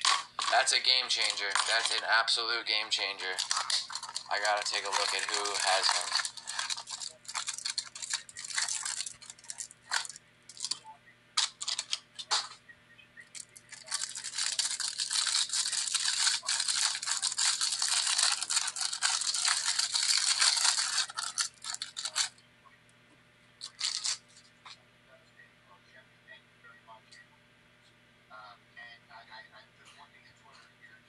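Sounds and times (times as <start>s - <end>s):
plastic wrapper crinkling and tearing: 0.0s - 2.0s, 3.0s - 10.8s, 11.4s - 12.5s, 13.3s - 22.3s, 23.6s - 24.4s.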